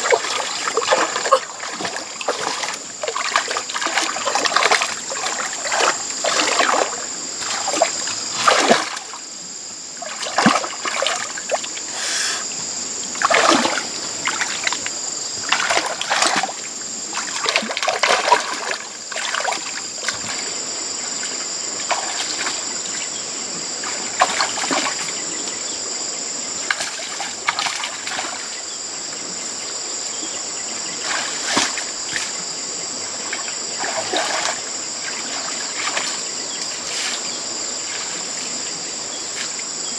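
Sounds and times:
hands splashing in muddy water: 0:00.0 - 0:09.2, 0:10.0 - 0:11.6, 0:13.2 - 0:20.6, 0:21.8 - 0:22.6, 0:23.8 - 0:25.1, 0:31.0 - 0:32.4, 0:33.2 - 0:36.3
high insect buzz: 0:00.0 - 0:17.7.

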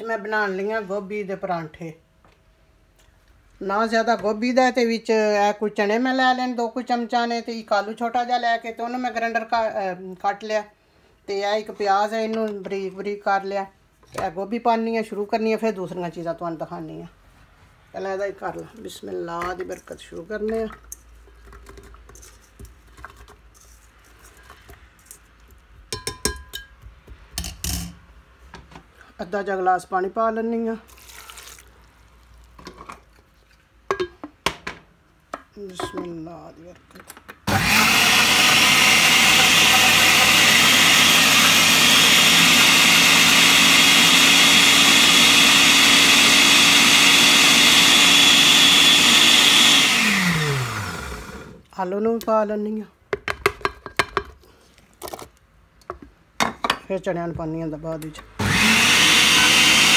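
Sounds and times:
electric blender running: 0:37.5 - 0:51.6, 0:58.4 - 0:59.9.

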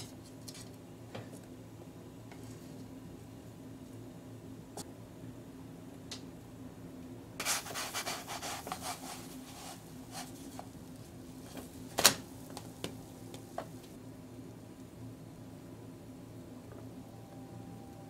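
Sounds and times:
utensils scraping frying pan: 0:07.4 - 0:10.6.

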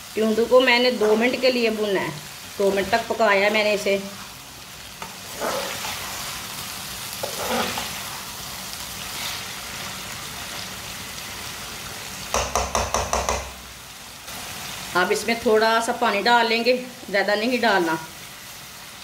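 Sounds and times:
vegetables sizzling in a pan: 0:00.0 - 0:19.0
metal spoon scraping: 0:05.0 - 0:06.4, 0:07.2 - 0:08.2
sharp knocks: 0:12.4 - 0:13.5.

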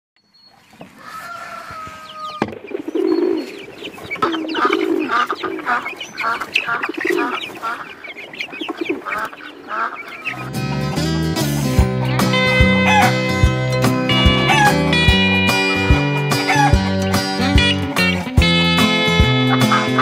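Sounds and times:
chickens clucking: 0:00.4 - 0:20.0
high chirping: 0:01.9 - 0:16.8.

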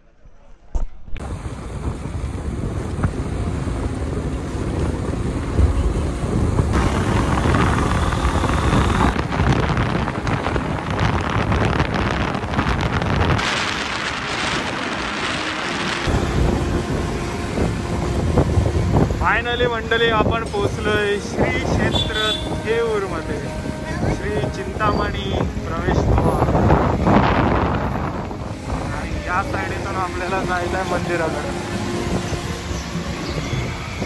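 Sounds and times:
road noise: 0:00.0 - 0:34.0
wind buffeting microphone: 0:00.7 - 0:34.0
motorcycle engine: 0:04.2 - 0:19.2.

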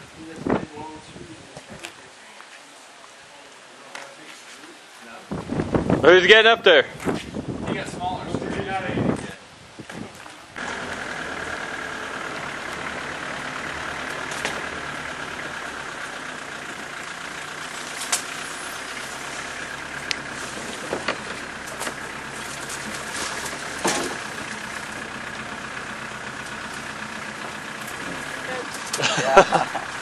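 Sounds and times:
vehicle engine running: 0:10.5 - 0:30.0
vehicle knocks and rattles: 0:10.6 - 0:30.0.

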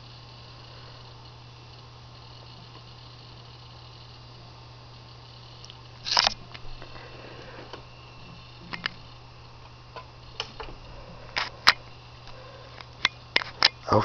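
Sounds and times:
hard drive clicking: 0:00.0 - 0:13.9
steady low hum: 0:00.0 - 0:14.0.

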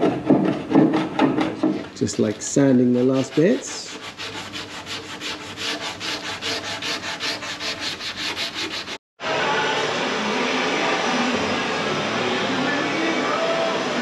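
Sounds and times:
sanding pad rubbing metal: 0:02.0 - 0:09.0.

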